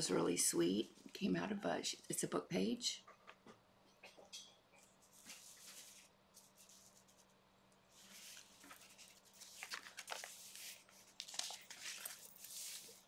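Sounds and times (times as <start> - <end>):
paper pages rustling: 5.0 - 7.3, 7.9 - 13.0
paper crackling: 8.0 - 13.0.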